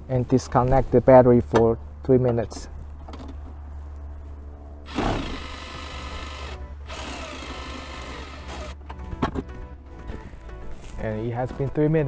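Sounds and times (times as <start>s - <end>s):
cordless power tool whining: 4.9s - 8.8s.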